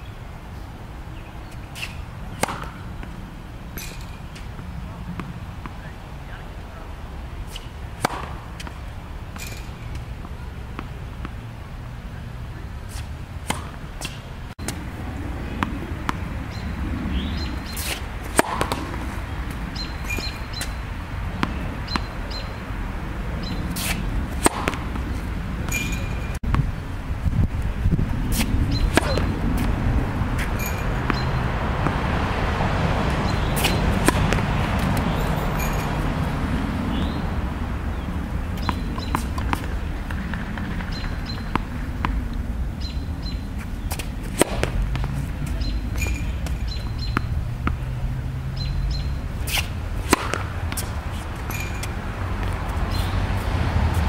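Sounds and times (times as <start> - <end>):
tennis ball bouncing on court: 1.4 - 6.4, 7.5 - 11.5, 13.4 - 22.6, 23.4 - 26.7, 27.6 - 37.2, 37.9 - 54.0
tennis ball hitting racket strings: 1.5 - 5.8, 7.4 - 11.5, 12.9 - 14.8, 17.2 - 22.5, 23.4 - 26.6, 28.3 - 37.2, 38.6 - 42.4, 43.9 - 54.0.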